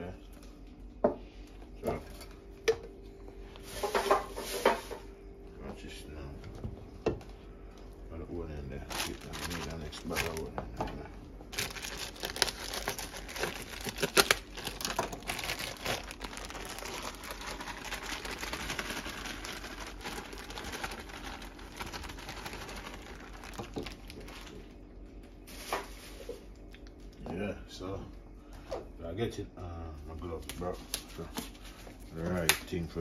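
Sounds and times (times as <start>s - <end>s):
plastic wrapping crinkling: 8.7s - 24.8s.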